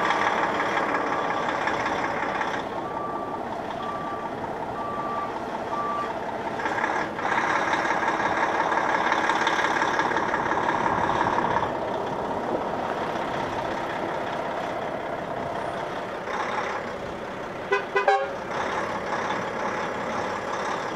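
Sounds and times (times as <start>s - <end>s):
truck diesel engine revving: 0.0s - 20.9s
reversing alarm beep: 2.8s - 6.1s
truck horn toots: 17.7s - 18.4s.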